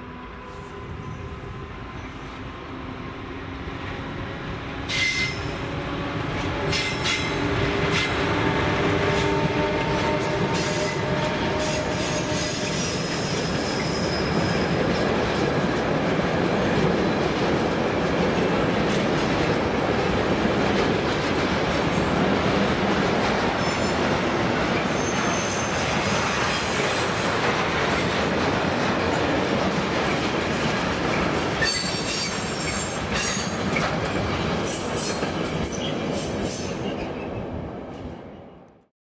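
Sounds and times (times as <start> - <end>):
train rumbling past: 0.0 - 38.7
wheel squeals: 11.6 - 14.8, 24.8 - 26.5.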